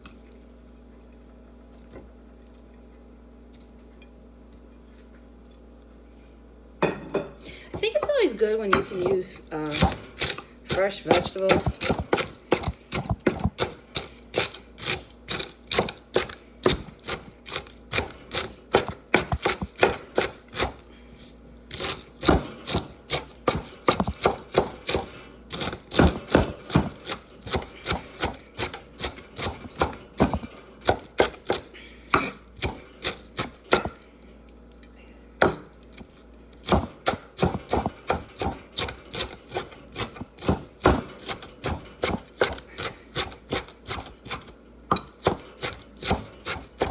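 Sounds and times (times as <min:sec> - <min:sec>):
knife chopping on wooden board: 0:08.7 - 0:20.8, 0:21.7 - 0:34.0, 0:35.4 - 0:46.9.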